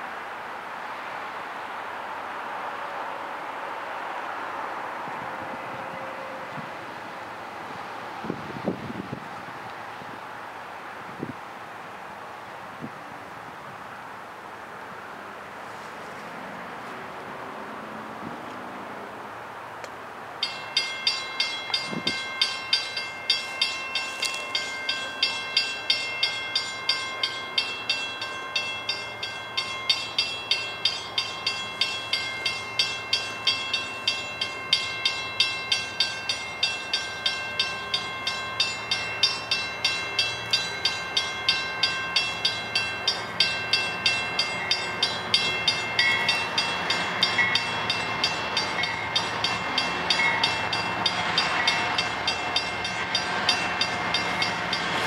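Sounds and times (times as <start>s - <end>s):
crossing bell ringing: 20.4s - 55.0s
diesel locomotive rumble: 20.4s - 55.0s.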